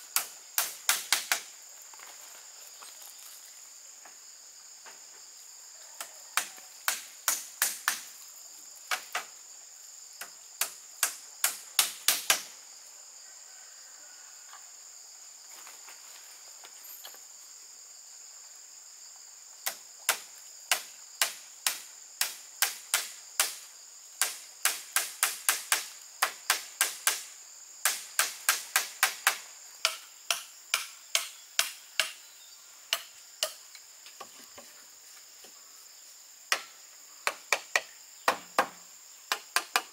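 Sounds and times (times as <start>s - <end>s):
high-pitched insect chorus: 0.0s - 39.9s
tool knocking on bamboo: 36.5s - 39.9s.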